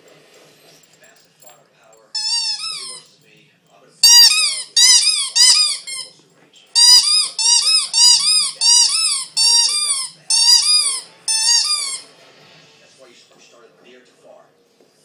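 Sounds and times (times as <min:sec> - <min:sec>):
squeaky toy squeaking: 0:02.1 - 0:03.1, 0:04.0 - 0:12.1.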